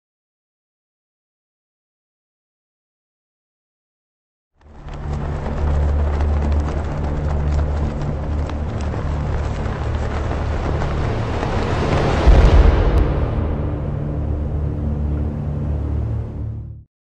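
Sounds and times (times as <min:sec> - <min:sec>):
crackling noise: 0:04.6 - 0:16.2
dark low drone: 0:04.6 - 0:16.9.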